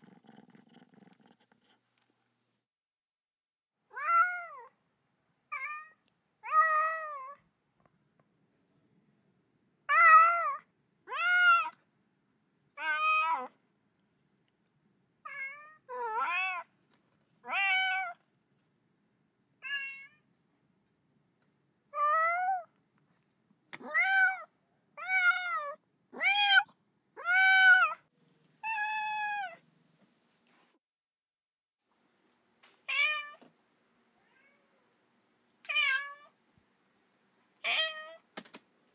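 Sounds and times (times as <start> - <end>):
cat meowing: 3.9 - 4.7, 12.8 - 13.5, 15.2 - 16.7, 17.4 - 18.2, 19.6 - 20.2, 23.8 - 28.0, 28.6 - 29.6, 32.9 - 33.4, 34.2 - 34.9, 35.7 - 36.4, 37.6 - 38.2.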